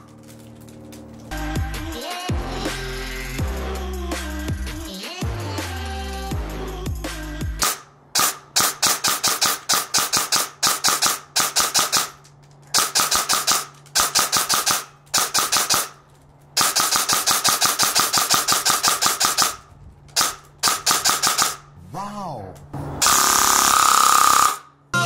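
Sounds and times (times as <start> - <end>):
airsoft gun firing bursts: 7.6 - 16.0, 16.6 - 21.6.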